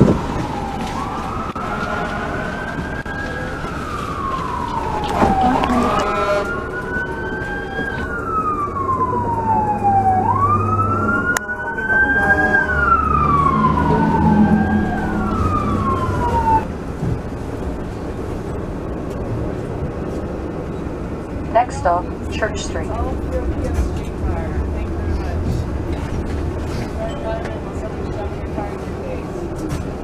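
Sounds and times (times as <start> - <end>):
second siren wailing: 0.0 - 16.7
fire truck siren wailing: 0.0 - 17.0
low rumble: 12.4 - 29.4.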